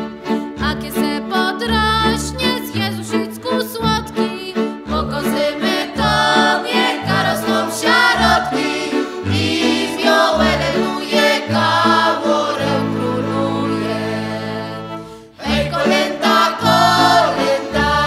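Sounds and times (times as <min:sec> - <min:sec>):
choir singing with music: 0:02.1 - 0:18.0.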